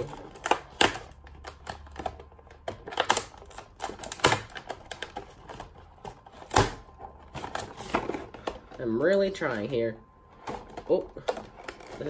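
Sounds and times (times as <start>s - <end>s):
scissors cutting hard plastic: 0.0s - 6.8s.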